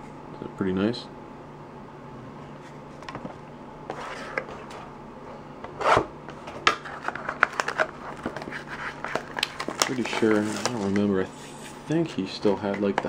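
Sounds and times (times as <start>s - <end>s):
cards rubbing and clicking: 6.8s - 11.8s.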